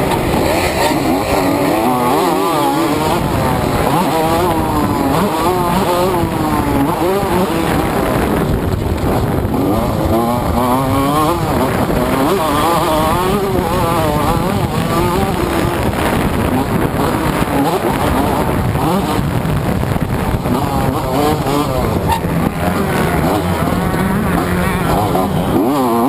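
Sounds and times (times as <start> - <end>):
motocross bike engine revving: 0.0 - 26.0.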